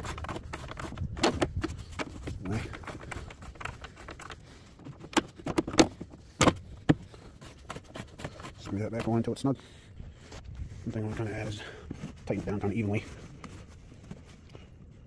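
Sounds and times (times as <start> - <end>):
engine cover knocking and clicking: 0.2 - 7.0.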